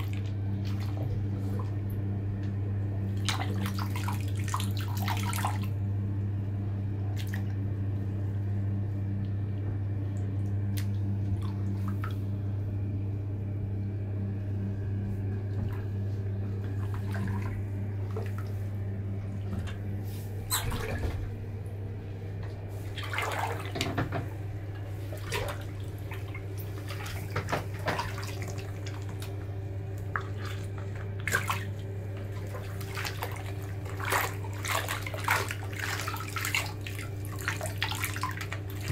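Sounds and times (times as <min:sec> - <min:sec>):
bathwater splashing: 0:00.0 - 0:05.8, 0:07.1 - 0:07.6, 0:10.2 - 0:12.5, 0:15.4 - 0:21.8, 0:22.5 - 0:38.9
steady low hum: 0:00.0 - 0:38.9
water running off shoe: 0:32.4 - 0:38.9.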